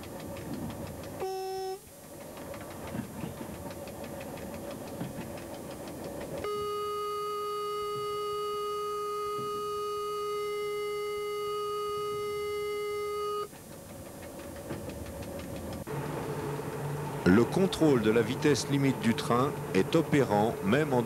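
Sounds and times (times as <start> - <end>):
train running noise: 0.0 - 6.7, 12.9 - 21.0
continuous warning tone: 0.0 - 21.0
wheels ticking over rails: 0.0 - 21.0
short beep: 6.4 - 13.5.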